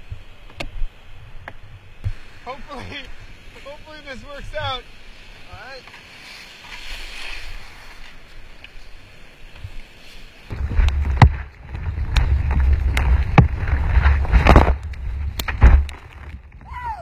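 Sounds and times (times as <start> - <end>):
low rumble of churning water: 0.0 - 17.0
whitewater rushing around kayak: 0.0 - 17.0
paddle strokes slapping water: 4.4 - 16.4.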